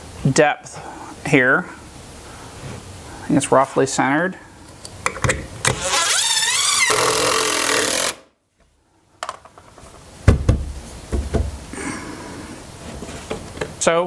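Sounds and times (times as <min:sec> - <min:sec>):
cordless drill driving screw: 0:05.7 - 0:08.2
sharp knocks on wood: 0:10.3 - 0:11.6.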